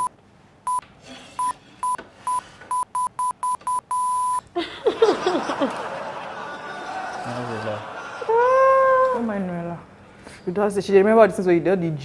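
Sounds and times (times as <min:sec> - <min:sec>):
electronic bleeps: 0:01.4 - 0:04.4.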